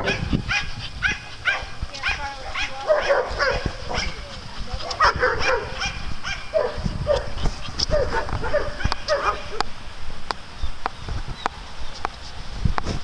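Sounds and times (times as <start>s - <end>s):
dogs barking and yipping: 0.0s - 9.8s.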